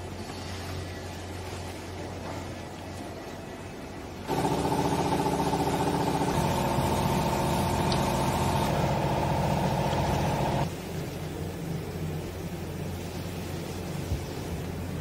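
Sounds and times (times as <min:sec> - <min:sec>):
machine motor humming: 0:04.3 - 0:10.7.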